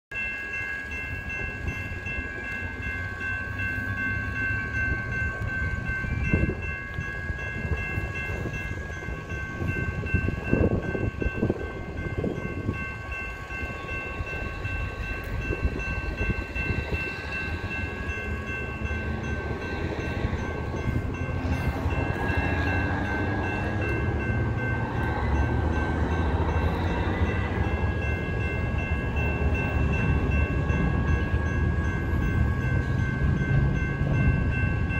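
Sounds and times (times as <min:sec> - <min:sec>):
approaching train rumble: 0:00.1 - 0:34.9
railroad crossing bell ringing: 0:00.1 - 0:34.9.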